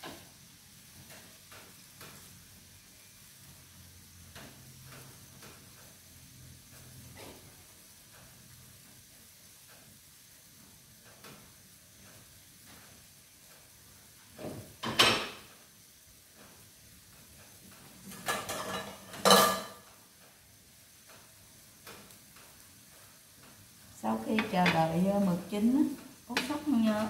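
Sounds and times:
faint hiss of wok simmering: 0.0s - 27.0s
dishes and utensils clattering: 14.4s - 15.5s, 18.0s - 19.9s.

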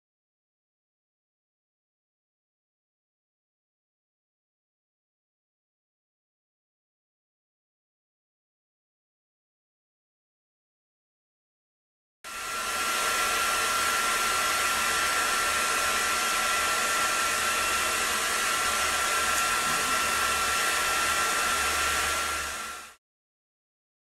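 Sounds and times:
hair dryer running: 12.3s - 23.0s.

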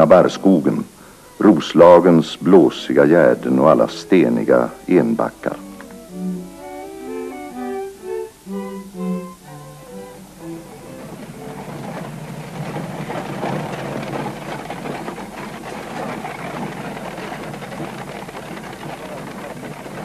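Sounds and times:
carriage wheels crunching gravel: 0.0s - 20.0s
hooves on gravel: 10.3s - 20.0s.

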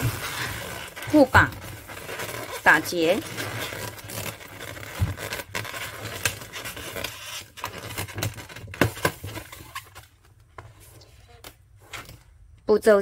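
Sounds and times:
rubber balloons rubbing: 0.0s - 10.0s.

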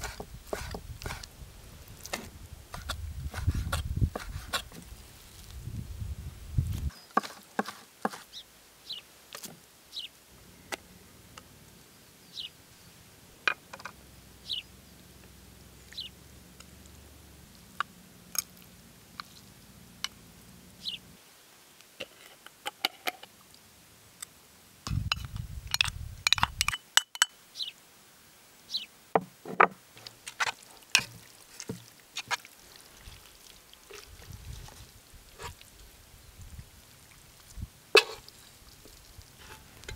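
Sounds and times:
knife knocking and scraping board: 0.0s - 1.2s, 7.2s - 8.2s, 29.2s - 29.8s.

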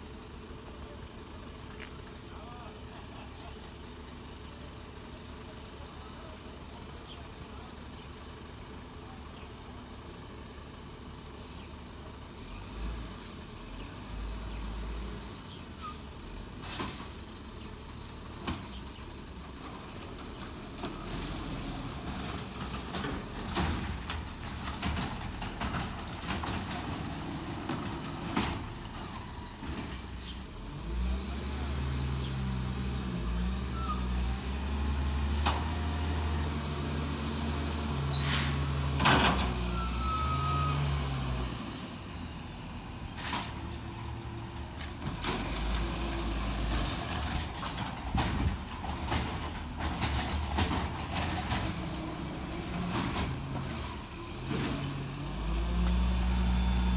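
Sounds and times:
garbage truck engine revving: 20.8s - 44.1s, 44.7s - 56.9s
knocks and clanks: 46.8s - 52.1s.

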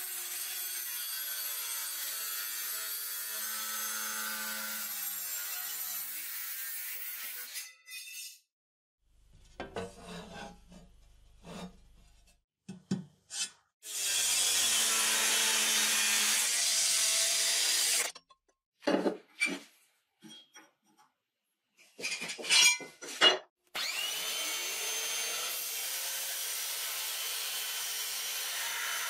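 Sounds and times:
angle grinder cutting steel: 0.0s - 7.8s, 13.8s - 18.3s, 23.8s - 29.0s.

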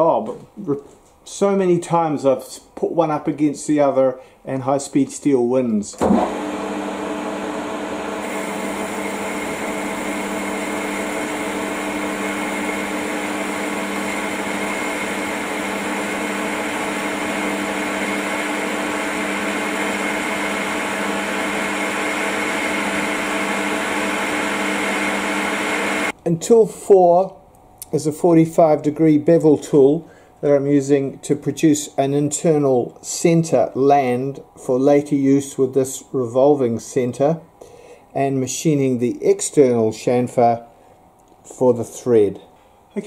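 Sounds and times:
metal lathe running with whine: 6.0s - 26.1s.

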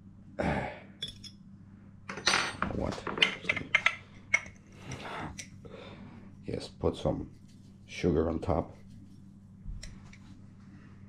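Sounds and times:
glass jars clinking on wood: 2.1s - 4.6s.

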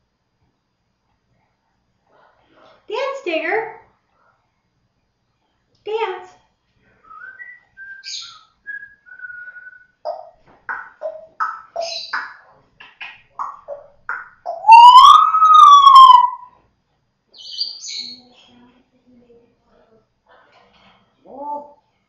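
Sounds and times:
parrot whistling: 7.2s - 10.3s, 11.0s - 12.3s, 13.4s - 16.5s
parrot chirps and clicks: 10.0s - 16.4s.

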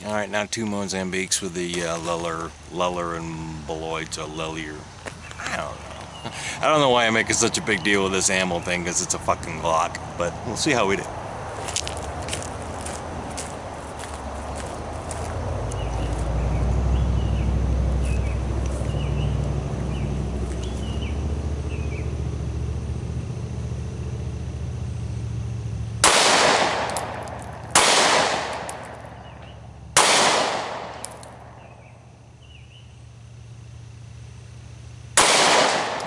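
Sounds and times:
pistol shots with echo: 26.0s - 29.4s, 30.0s - 31.6s, 35.2s - 36.0s.

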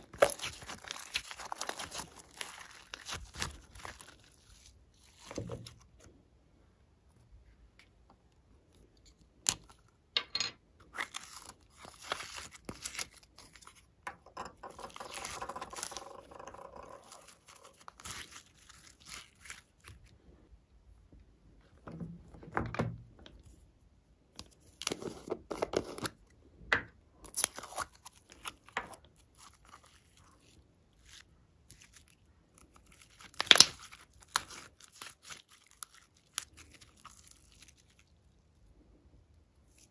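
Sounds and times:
slime crackling and popping: 0.0s - 4.7s, 14.7s - 20.1s, 31.7s - 38.1s.

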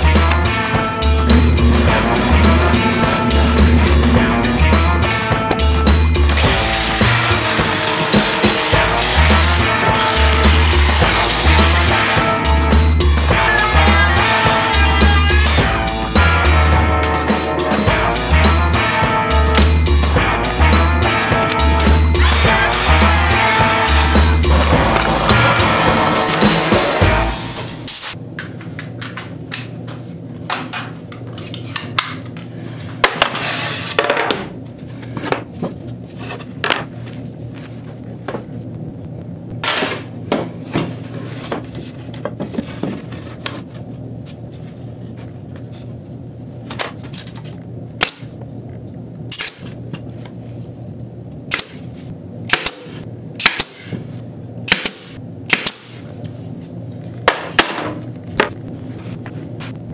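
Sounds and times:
nail gun firing: 49.3s - 49.7s, 52.5s - 53.9s, 54.7s - 56.0s.

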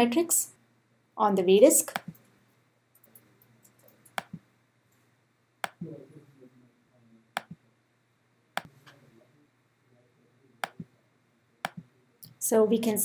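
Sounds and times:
computer mouse clicks: 1.9s - 2.2s, 3.0s - 4.4s.

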